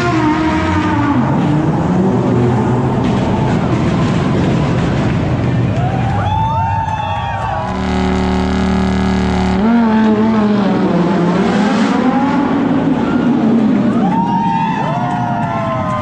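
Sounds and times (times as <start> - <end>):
sports car engines revving: 0.0 - 5.5, 7.7 - 14.0.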